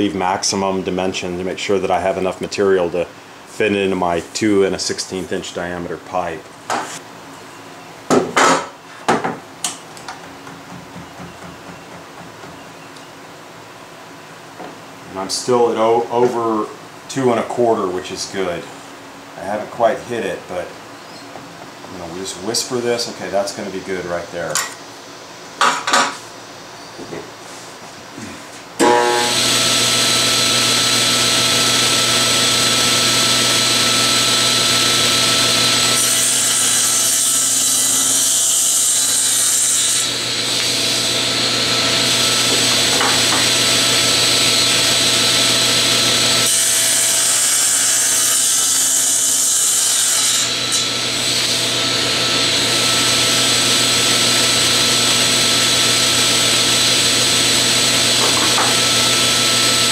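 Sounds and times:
saw cutting wood hiss: 0:28.8 - 0:59.9
table saw motor humming: 0:28.8 - 0:59.9.

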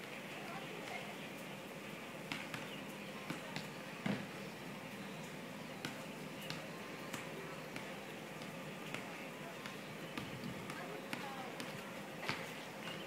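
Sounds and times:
outdoor background noise: 0:00.0 - 0:13.0.

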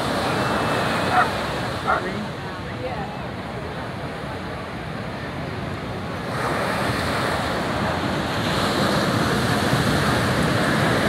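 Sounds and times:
surf breaking and washing in: 0:00.0 - 0:11.0.

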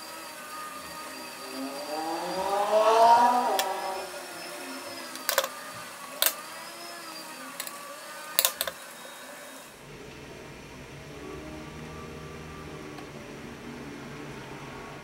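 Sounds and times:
rising squeak of peeling backing: 0:00.0 - 0:08.0.

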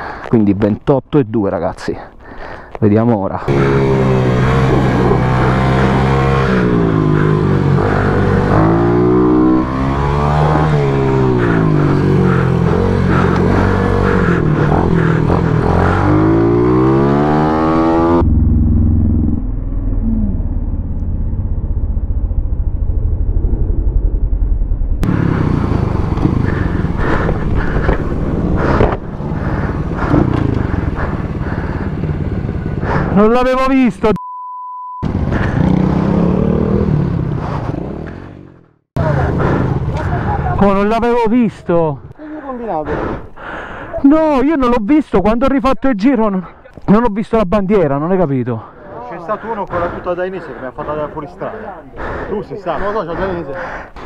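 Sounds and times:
motorbike engine revving: 0:03.5 - 0:24.4, 0:25.0 - 0:33.9, 0:35.0 - 0:40.8
engine rattling: 0:03.5 - 0:34.0.

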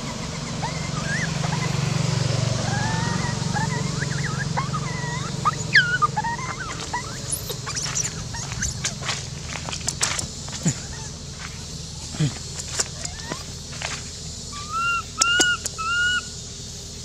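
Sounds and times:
dry leaves crackling: 0:00.0 - 0:15.7
baby monkey squealing: 0:00.0 - 0:16.4.

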